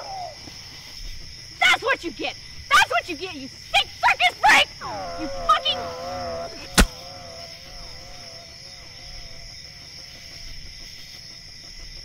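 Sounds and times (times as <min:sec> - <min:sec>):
crickets chirring: 0:00.0 - 0:12.0
sharp crack: 0:06.6 - 0:07.2.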